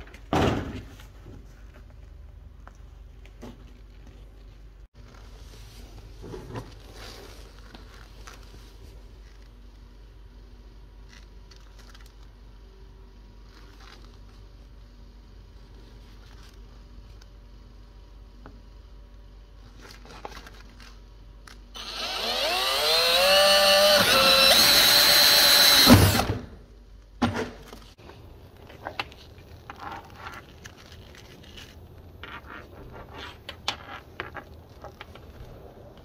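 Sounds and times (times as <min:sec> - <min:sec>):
power drill boring into plastic: 0:21.8 - 0:26.4.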